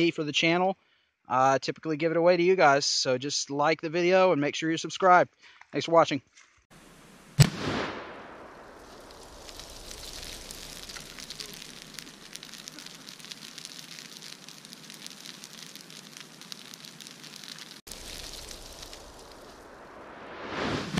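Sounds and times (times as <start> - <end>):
brush fire crackling and hissing: 6.7 - 20.9
explosive target bang: 7.4 - 8.8.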